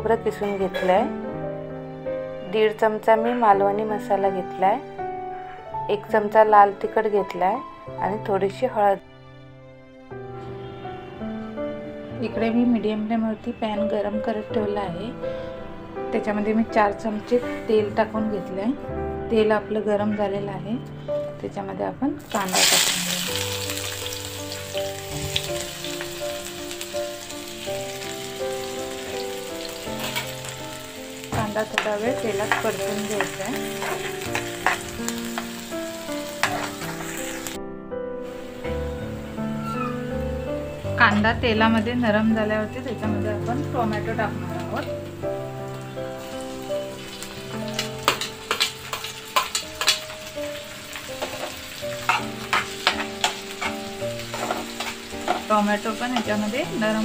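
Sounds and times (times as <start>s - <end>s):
background music with held notes: 0.0s - 57.0s
onions sizzling in oil: 22.2s - 37.6s, 38.3s - 40.9s, 41.7s - 57.0s
metal spoon clicking and scraping: 32.5s - 34.9s.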